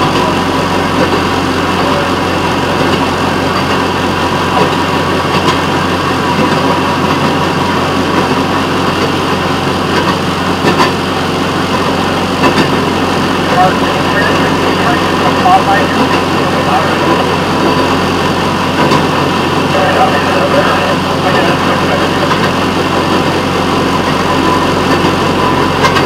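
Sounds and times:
rail motorcar engine hum: 0:00.0 - 0:26.0
wheel noise on rails: 0:00.0 - 0:26.0.

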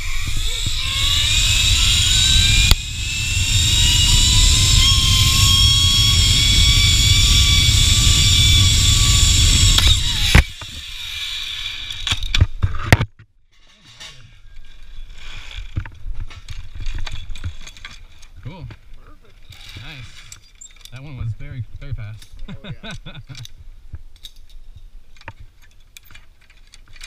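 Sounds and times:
wind rumble on microphone: 0:00.0 - 0:10.4
zipline pulleys whining on cable: 0:00.0 - 0:12.3.

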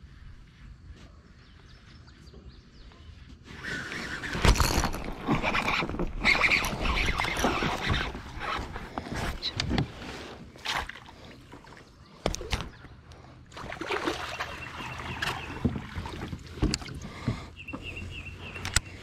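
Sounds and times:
knocks and scrapes on plastic kayak: 0:04.4 - 0:10.9, 0:14.8 - 0:18.0
water splashing: 0:10.5 - 0:12.7, 0:13.5 - 0:17.2.

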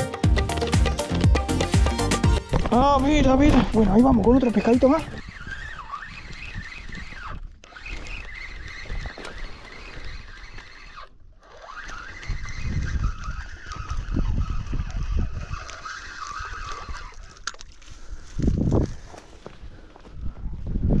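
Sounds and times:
fishing reel whirring: 0:00.4 - 0:19.1
wind rumble on microphone: 0:12.0 - 0:21.0.

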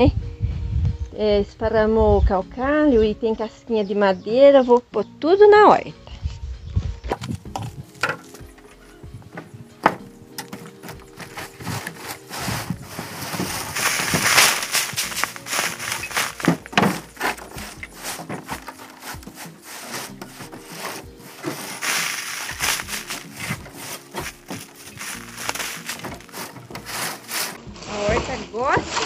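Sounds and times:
straw broom sweeping wooden boards: 0:07.9 - 0:29.0.

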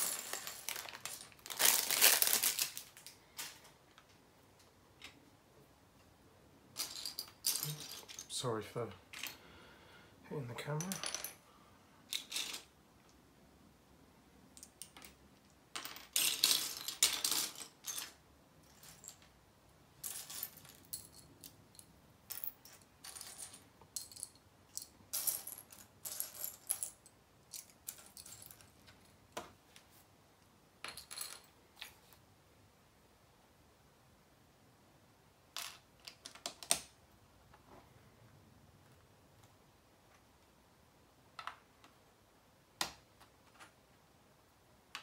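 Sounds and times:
plastic pieces clattering: 0:00.0 - 0:03.7.

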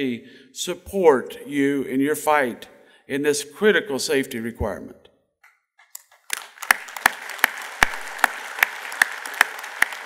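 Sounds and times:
audience applause: 0:06.2 - 0:10.0
loud single claps: 0:06.3 - 0:10.0.

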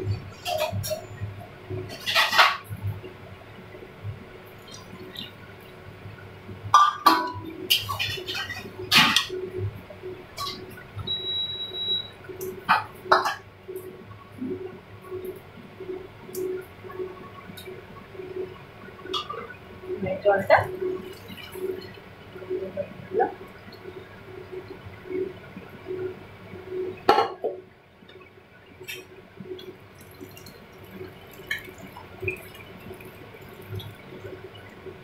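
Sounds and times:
liquid sloshing and bubbling: 0:06.7 - 0:26.1, 0:28.4 - 0:35.0.

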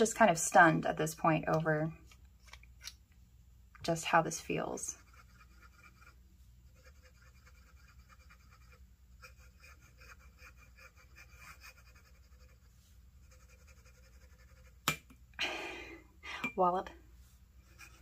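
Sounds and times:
fountain pen nib scratching paper: 0:05.0 - 0:14.8.

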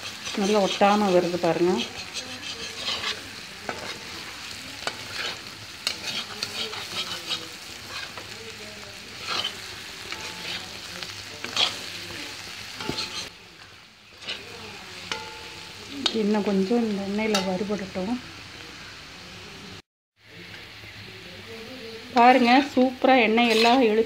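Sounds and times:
metal spatula scraping pan: 0:00.0 - 0:08.4, 0:09.1 - 0:13.4, 0:14.1 - 0:16.2, 0:23.2 - 0:24.0
potatoes sizzling in hot oil: 0:00.0 - 0:24.0.

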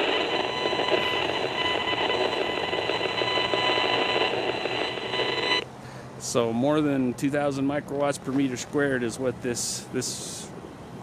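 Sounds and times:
analyzer loudspeaker buzzing tone: 0:00.0 - 0:05.6.

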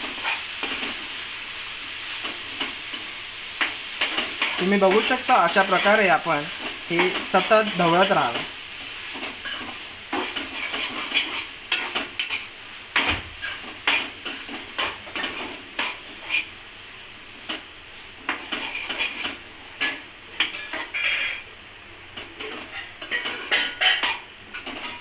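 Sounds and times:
spatula scraping metal pan: 0:09.4 - 0:16.5, 0:18.3 - 0:21.4, 0:22.4 - 0:25.0.

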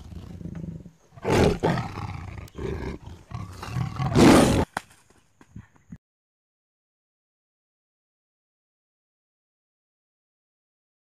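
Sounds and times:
tiger roaring and snarling: 0:00.0 - 0:04.7.

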